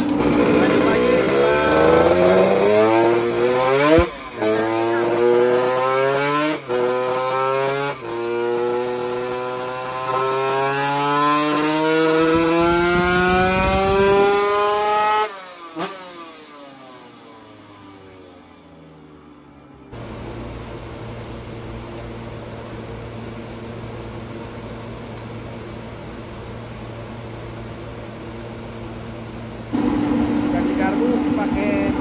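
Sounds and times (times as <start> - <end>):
two-stroke engine revving: 0.0 - 19.1, 29.7 - 32.0.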